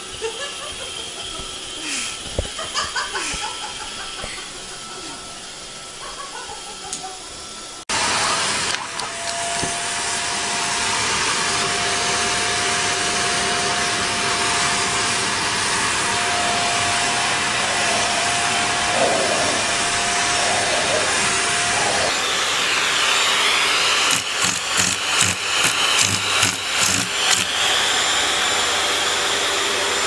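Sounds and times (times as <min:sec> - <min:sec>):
vacuum cleaner running: 0:06.6 - 0:30.0.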